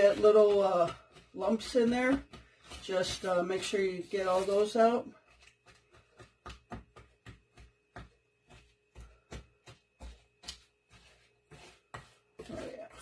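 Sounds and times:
spatula stirring mixture in bowl: 0.0s - 13.0s.

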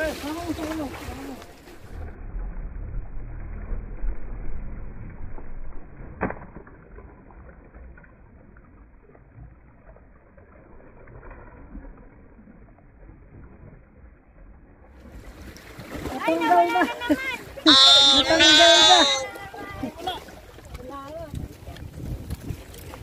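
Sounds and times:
water lapping against rocks: 0.0s - 2.3s, 6.2s - 23.0s
wind rumble on microphone: 20.6s - 23.0s.

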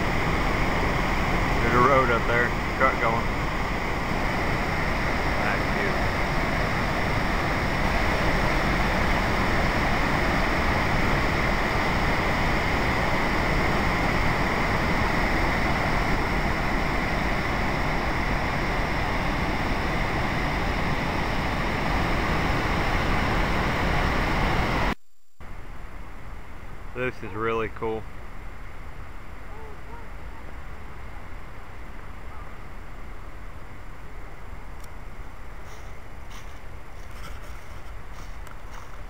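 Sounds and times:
waterfall rushing: 0.0s - 25.0s.

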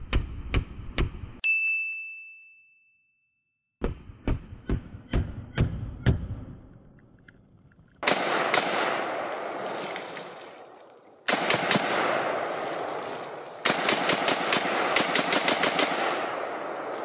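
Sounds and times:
rifle shots with long echo: 8.0s - 9.7s, 11.2s - 17.0s.

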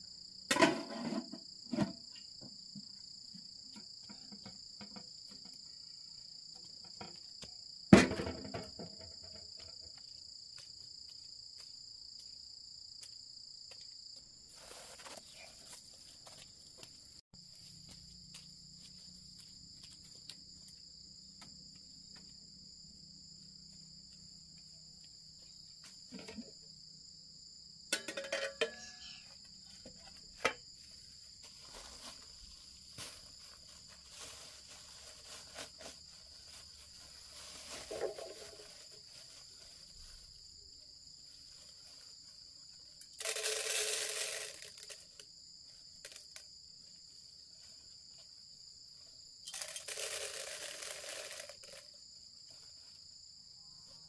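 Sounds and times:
crickets chirring: 0.0s - 54.0s
metal pot clanking on concrete: 27.9s - 29.2s
pot lid clinking: 28.0s - 29.1s.

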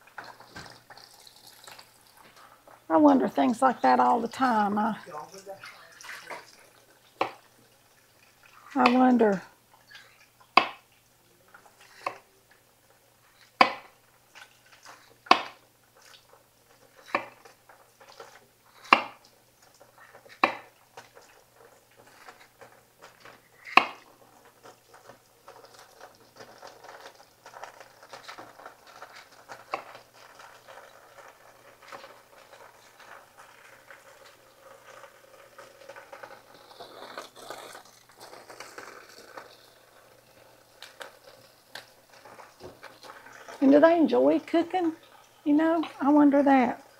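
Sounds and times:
knife chopping on wooden board: 10.6s - 10.8s, 13.6s - 13.9s, 15.3s - 15.6s, 17.1s - 17.4s, 18.8s - 19.2s, 20.4s - 20.7s, 23.7s - 24.0s.

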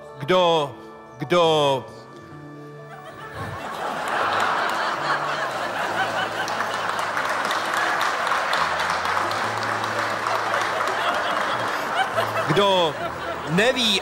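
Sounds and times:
people laughing and chattering: 2.7s - 14.0s
people clapping: 3.6s - 14.0s.

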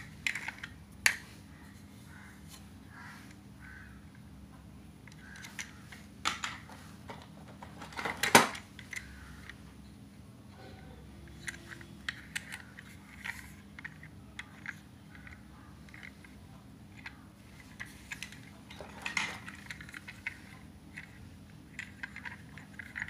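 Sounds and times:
toy train clicking and rattling: 0.0s - 1.2s, 11.2s - 23.0s.

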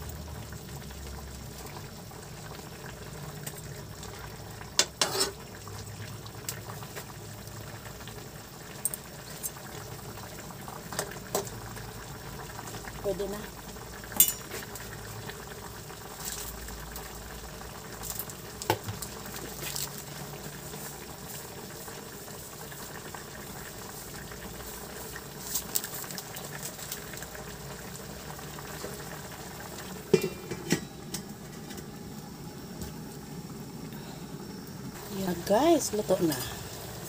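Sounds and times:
sauce bubbling in a wok: 0.0s - 37.0s
metal clinks on a pan: 14.2s - 14.5s.

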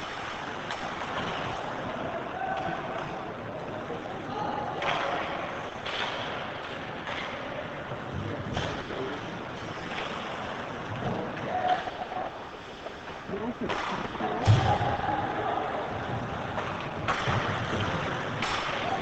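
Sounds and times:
hockey sticks clacking on puck: 0.0s - 3.2s, 4.8s - 7.8s, 13.6s - 14.9s, 16.2s - 19.0s.

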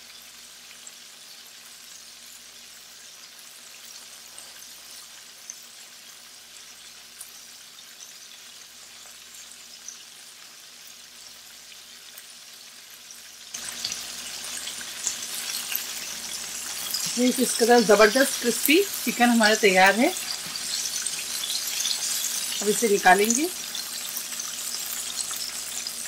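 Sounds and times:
food deep-frying in oil: 0.0s - 26.0s
slotted spoon moving food in oil: 13.1s - 26.0s.

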